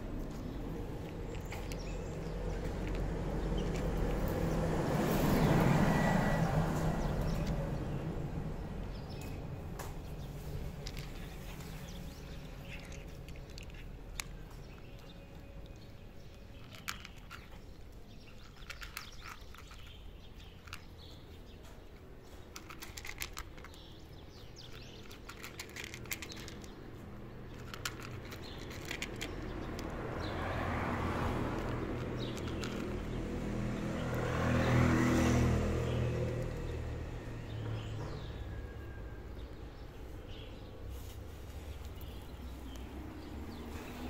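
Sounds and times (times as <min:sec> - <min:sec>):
passing vehicle engine: 0:00.0 - 0:17.6, 0:25.0 - 0:44.0
cat crunching dry kibble: 0:00.1 - 0:05.8, 0:10.2 - 0:21.4, 0:22.0 - 0:36.6.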